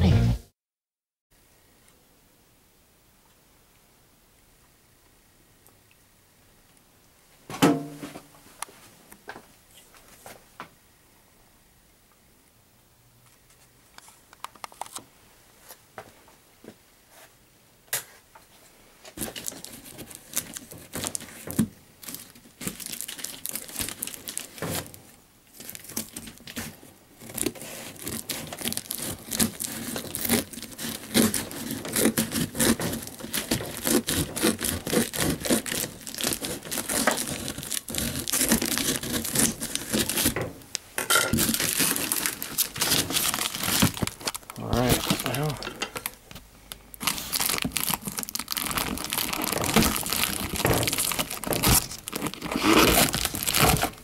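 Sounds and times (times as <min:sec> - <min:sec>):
plastic wrap crinkling and tearing: 0:19.2 - 0:54.0.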